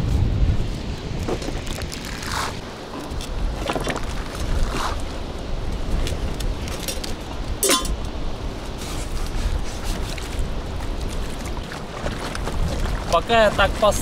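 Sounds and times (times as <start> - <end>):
wind rumbling on microphone: 0.0 - 14.0
fishing gear clinking: 6.7 - 8.1.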